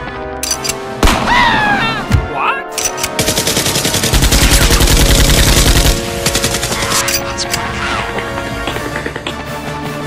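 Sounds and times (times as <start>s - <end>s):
action background music: 0.0s - 10.0s
machine-gun fire: 3.2s - 7.0s.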